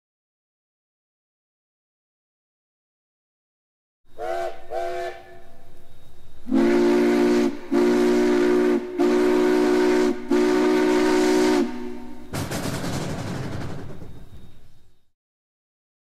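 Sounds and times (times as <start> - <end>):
steam whistle short toots: 4.1 - 5.6, 6.4 - 12.3
chime steam whistle blasts: 4.1 - 12.4
steam hiss: 4.2 - 14.9.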